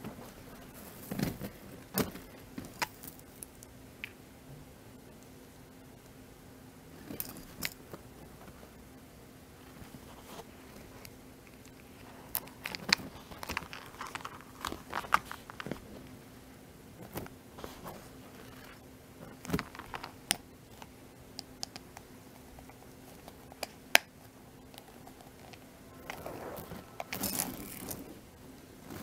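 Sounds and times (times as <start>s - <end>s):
metal chain links clinking: 27.1s - 28.1s.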